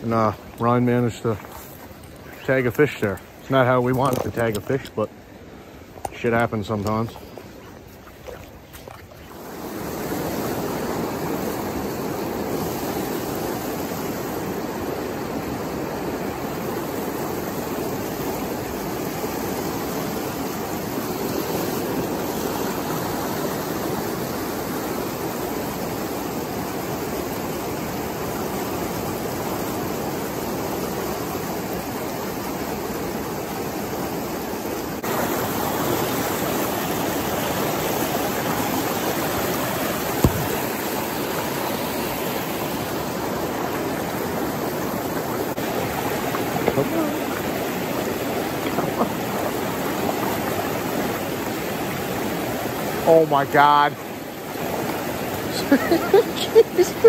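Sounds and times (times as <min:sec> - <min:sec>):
river rapids rushing over rocks: 0:32.8 - 0:57.0.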